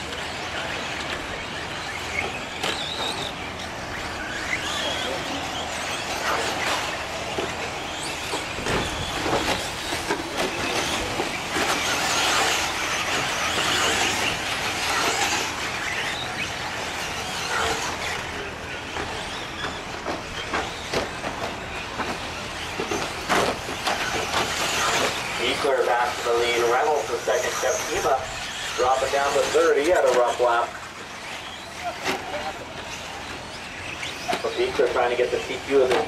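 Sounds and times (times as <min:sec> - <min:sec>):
toy trucks electric motors: 0:00.0 - 0:36.0.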